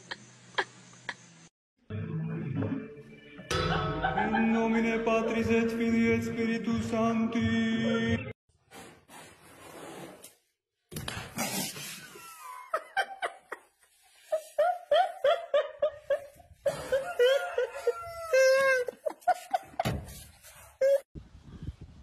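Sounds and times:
person laughing hard: 3.5 - 5.4, 12.1 - 13.7, 14.3 - 20.0.

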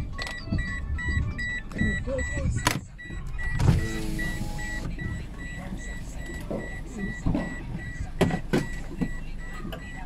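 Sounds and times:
high electronic beeps: 0.0 - 10.0
power window motor whirring: 3.6 - 5.0.

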